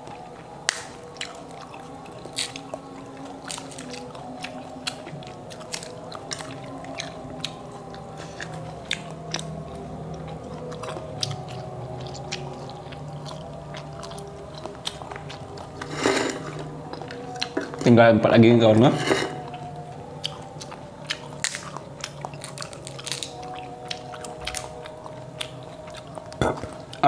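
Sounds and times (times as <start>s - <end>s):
person chewing fruit: 0.0s - 18.1s, 18.7s - 27.0s
fruit rinds cracking and peeling: 0.6s - 2.8s, 3.4s - 4.1s, 19.6s - 27.0s.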